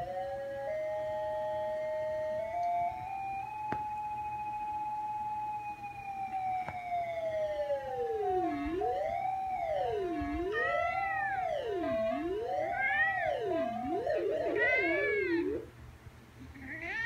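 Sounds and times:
held synthesizer tone: 7.5s - 15.7s
synthesizer tone sweeping: 7.8s - 15.7s.

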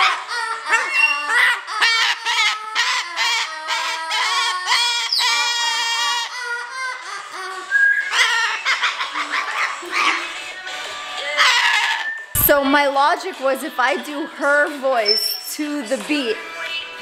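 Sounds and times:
cockatoo calls: 0.0s - 10.6s, 11.2s - 12.4s.

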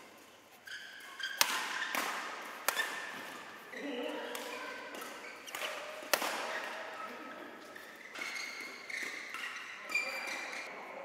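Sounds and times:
racket hitting shuttlecock: 0.7s - 7.1s.

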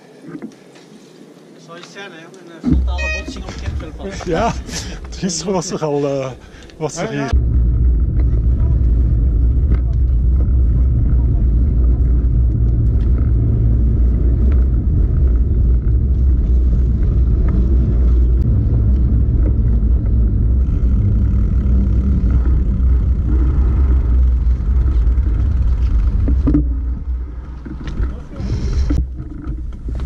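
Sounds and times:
wind rumbling over microphone: 7.3s - 30.0s.

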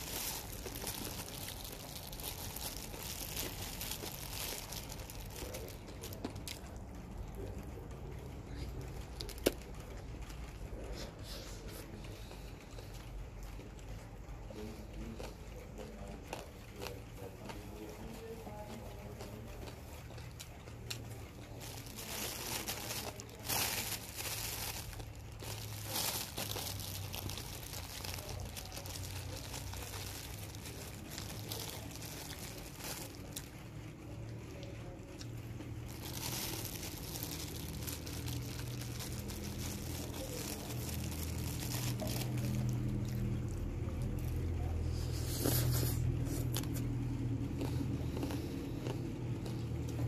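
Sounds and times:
paper napkin crinkling: 0.0s - 6.6s, 20.8s - 33.6s, 35.6s - 46.9s
low background hum: 0.0s - 50.0s.

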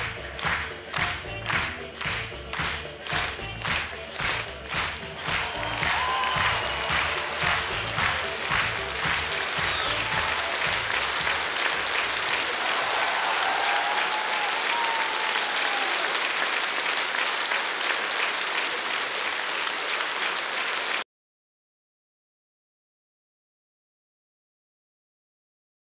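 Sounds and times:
stage music: 0.0s - 17.8s
audience applauding: 0.0s - 21.0s.

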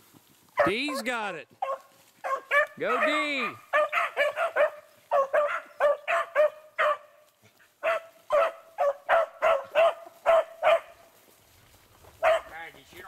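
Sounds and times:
dog barking in short yelps: 1.6s - 7.2s, 7.8s - 10.9s, 12.2s - 12.5s.

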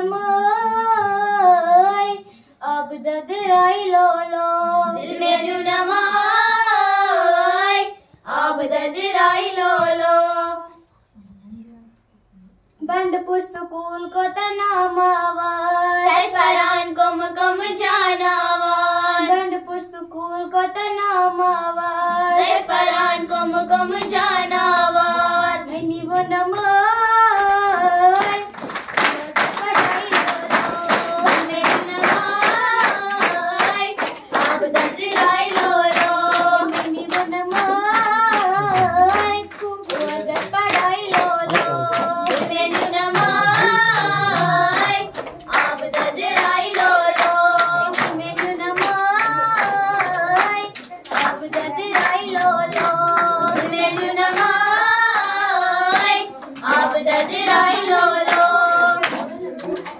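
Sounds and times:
girls singing into a microphone: 0.0s - 11.0s, 12.8s - 59.9s
rhythmic hand claps: 21.8s - 59.9s.

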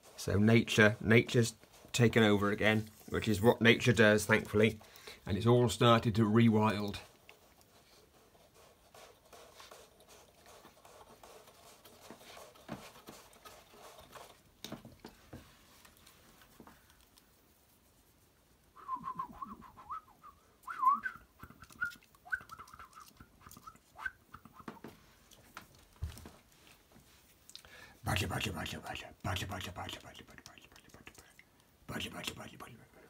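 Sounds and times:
paper rustling and light knocks: 8.8s - 17.2s, 24.6s - 27.5s.

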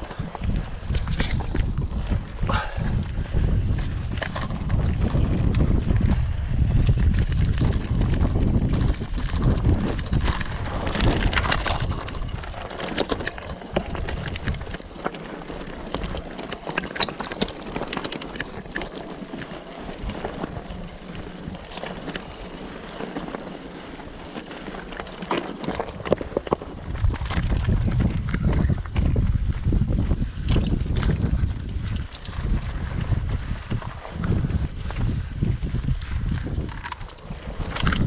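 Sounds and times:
bike tyres crunching over gravel: 0.0s - 38.0s
wind rumbling on microphone: 0.0s - 38.0s.

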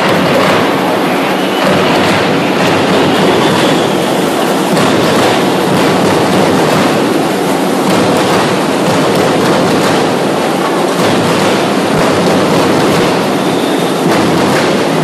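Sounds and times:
crowd roar: 0.0s - 15.0s.

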